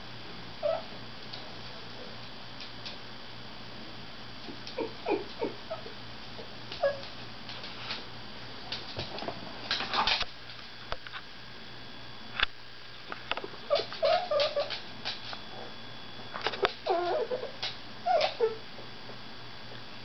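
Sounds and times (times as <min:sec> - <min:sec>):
dog whimpering: 0:00.6 - 0:00.9, 0:04.5 - 0:05.9, 0:06.8 - 0:07.1, 0:13.7 - 0:14.8, 0:16.6 - 0:18.6.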